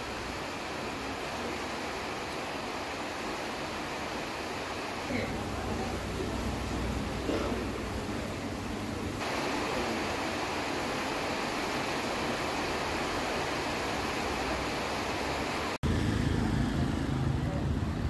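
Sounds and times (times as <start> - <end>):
heavy rain hiss: 0.0 - 18.0.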